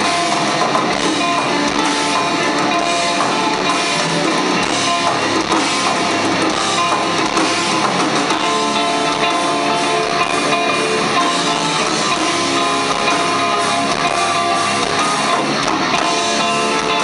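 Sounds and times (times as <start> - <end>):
metal band playing live: 0.0 - 17.0.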